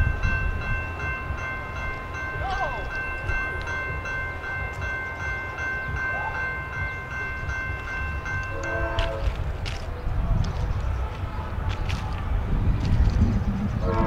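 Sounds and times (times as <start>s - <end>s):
railroad crossing bell ringing: 0.0s - 9.7s
low rumble: 8.8s - 14.0s.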